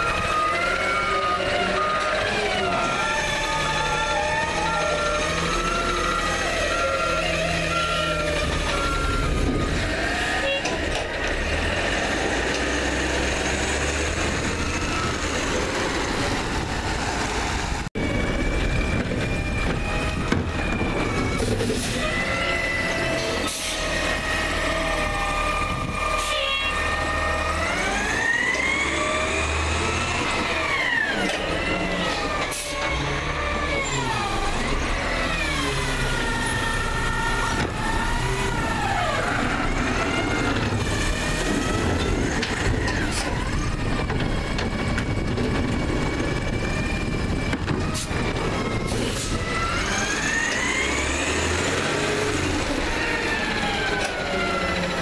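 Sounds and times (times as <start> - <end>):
garbage truck engine: 0.0 - 55.0
hydraulic whine: 18.0 - 55.0.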